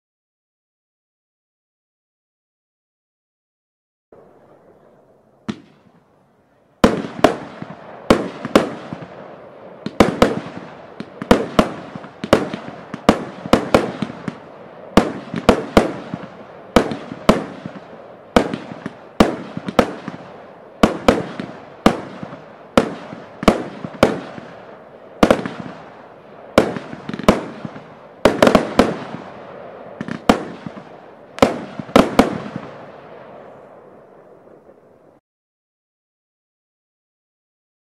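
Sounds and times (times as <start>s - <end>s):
fireworks bangs: 4.2s - 6.2s, 6.8s - 34.9s.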